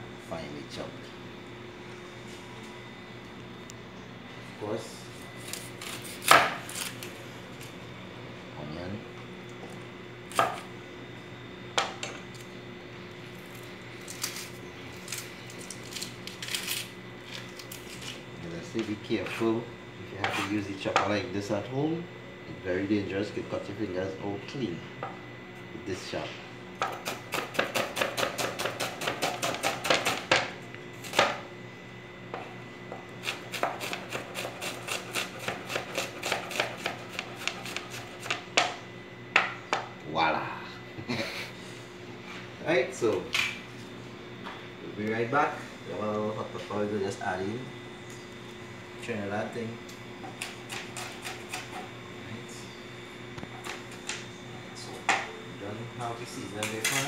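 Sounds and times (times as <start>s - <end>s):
dry onion skin crackling: 13.3s - 18.2s
knife chopping on cutting board: 26.8s - 30.5s, 33.2s - 38.7s.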